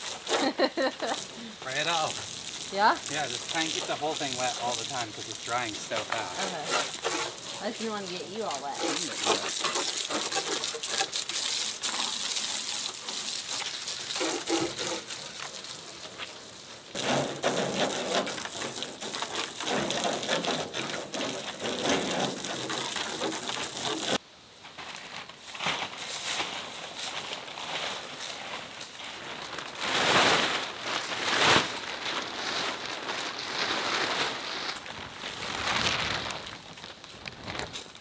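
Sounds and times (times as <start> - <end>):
water spattering off metal: 0.0 - 16.2, 16.9 - 24.2
garden hose spraying water: 0.0 - 24.2, 26.0 - 38.0.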